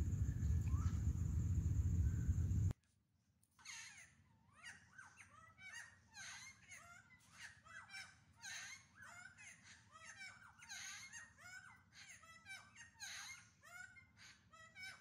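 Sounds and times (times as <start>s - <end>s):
birds calling faintly: 0.0s - 2.8s.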